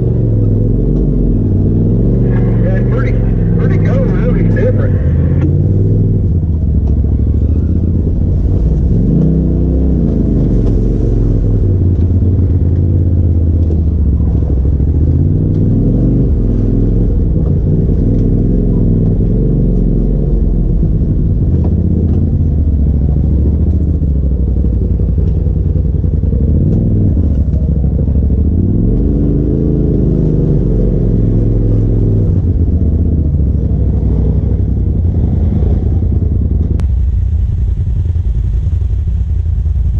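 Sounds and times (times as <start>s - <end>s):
low rumble: 0.0s - 39.9s
vehicle engine revving at low speed: 0.0s - 39.9s.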